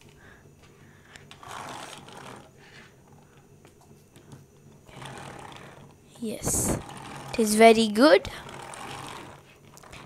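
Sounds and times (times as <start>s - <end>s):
toy cars scraping on table: 1.3s - 2.9s, 4.9s - 7.6s, 8.2s - 10.0s.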